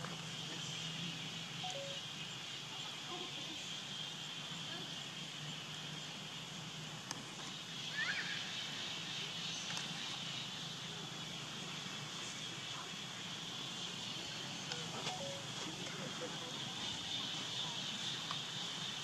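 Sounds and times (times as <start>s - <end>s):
high chirp: 1.6s - 2.0s, 15.1s - 15.5s
faint clicks: 7.0s - 7.2s, 18.2s - 18.5s.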